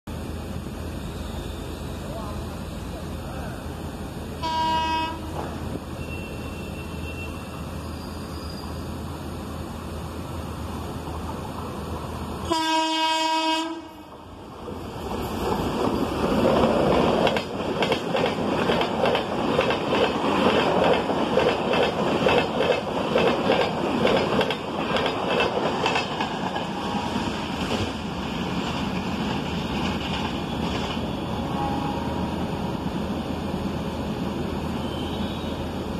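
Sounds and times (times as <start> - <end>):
train horn blasts: 4.4 - 5.4, 12.5 - 14.1
train wheels clickety-clack: 5.3 - 5.8, 14.6 - 31.2.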